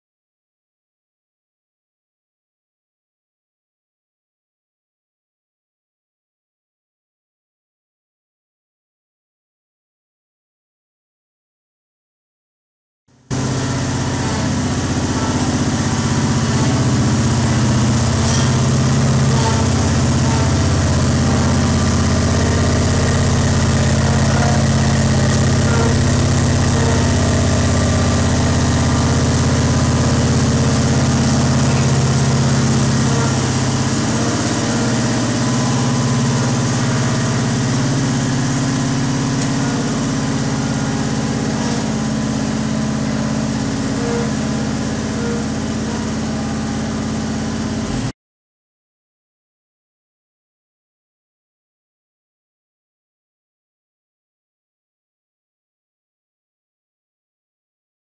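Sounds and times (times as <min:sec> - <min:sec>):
road roller engine running: 0:13.1 - 0:48.1.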